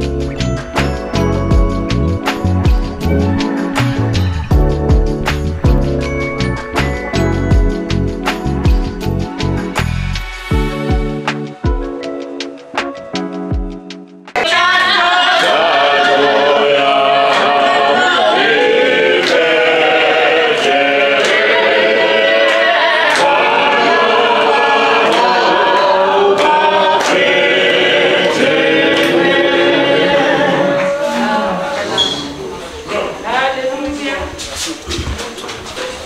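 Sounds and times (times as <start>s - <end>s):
music: 0.0s - 31.9s
group singing unaccompanied: 14.4s - 32.4s
hand-claps: 17.3s - 17.6s, 18.5s - 19.9s, 20.5s - 27.6s, 28.2s - 29.3s.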